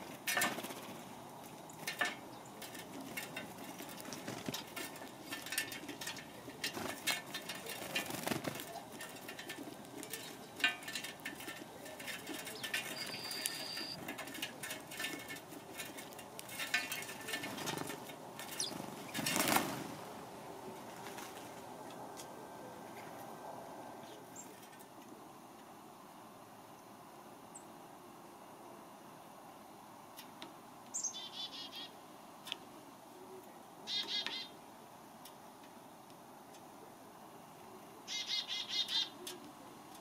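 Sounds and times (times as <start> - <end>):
bird wings fluttering: 0.0 - 20.2, 20.8 - 21.7.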